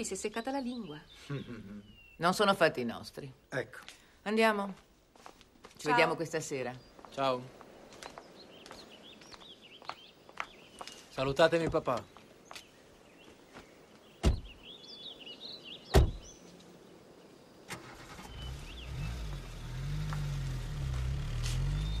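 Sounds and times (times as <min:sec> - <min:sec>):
birds chirping: 0:00.0 - 0:22.0
car doors shutting: 0:15.9 - 0:16.3
car engine starting and running: 0:17.7 - 0:22.0.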